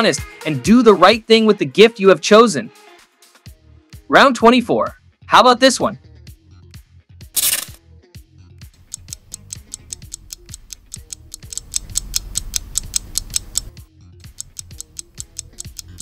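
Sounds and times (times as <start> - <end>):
background music: 0.0 - 16.0
rapid clock ticking: 8.8 - 16.0.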